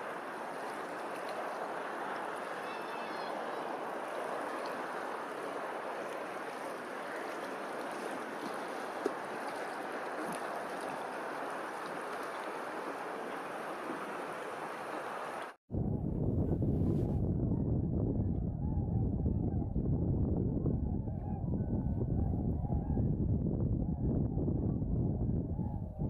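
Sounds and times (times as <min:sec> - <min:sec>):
rushing open water: 0:00.0 - 0:15.6.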